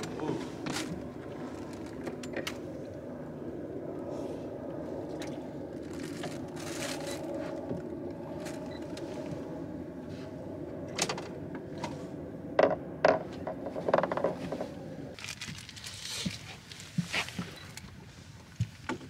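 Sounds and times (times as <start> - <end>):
boat motor humming: 0.0 - 15.2.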